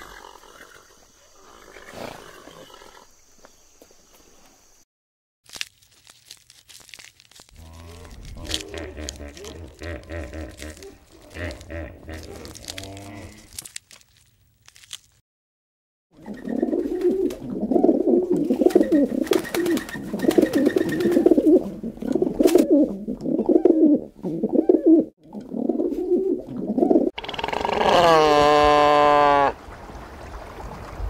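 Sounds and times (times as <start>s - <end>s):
birds cooing: 8.0s - 12.8s, 16.2s - 29.6s.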